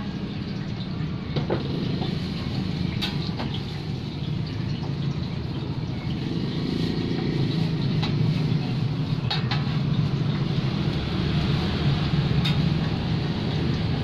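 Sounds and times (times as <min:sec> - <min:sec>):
oil sizzling on flat pan: 0:00.2 - 0:05.4.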